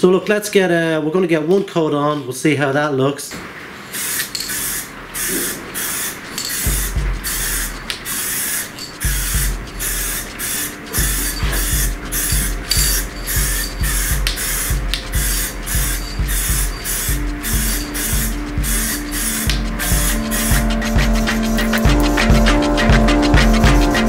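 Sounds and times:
aerosol can spraying hiss: 0:03.9 - 0:24.0
low regular beat with tones: 0:06.5 - 0:24.0.

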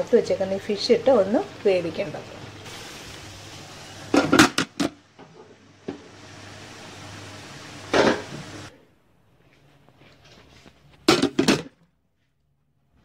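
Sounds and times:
steady hiss: 0:00.2 - 0:08.8
cookware clacking and clattering: 0:04.1 - 0:04.9, 0:11.1 - 0:11.7.

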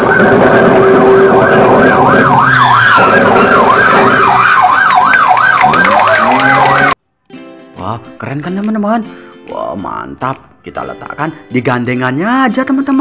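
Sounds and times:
police siren yelping: 0:00.0 - 0:07.0.

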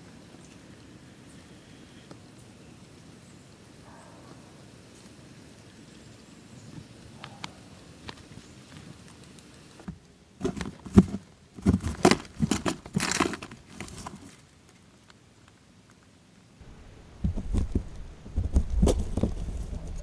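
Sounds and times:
shrew rustling through husks: 0:07.5 - 0:14.9
low rumble: 0:16.6 - 0:20.0.

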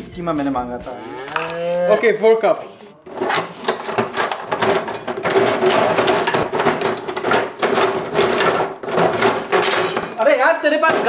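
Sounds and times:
banging and clanging: 0:03.0 - 0:11.0.

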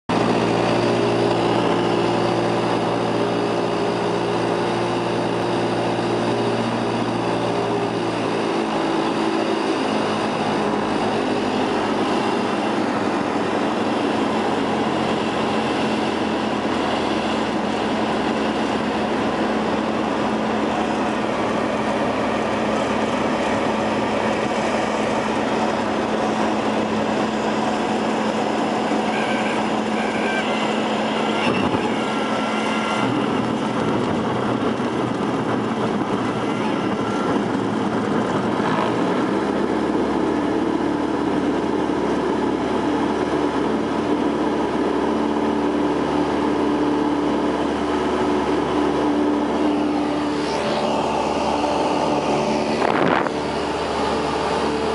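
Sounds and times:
light aircraft engine and propeller: 0:00.1 - 0:54.9
wind noise: 0:30.7 - 0:45.0, 0:47.4 - 0:54.9.

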